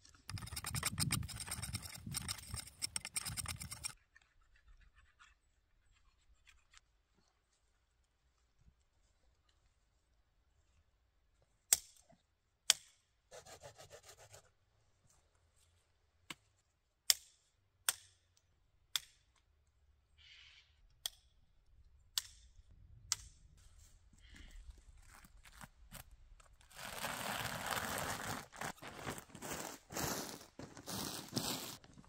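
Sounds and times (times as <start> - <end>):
rough rasping scrape: 0.1 - 4.0.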